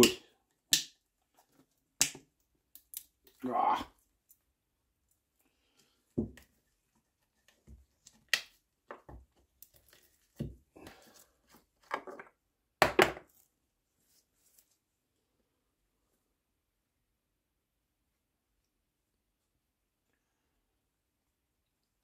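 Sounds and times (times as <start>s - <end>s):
cloth rustle: 13.8s - 15.0s.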